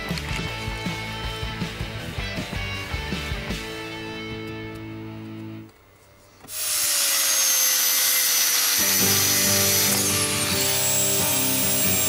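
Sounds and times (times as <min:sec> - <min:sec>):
angle grinder cutting metal: 0:06.5 - 0:12.0.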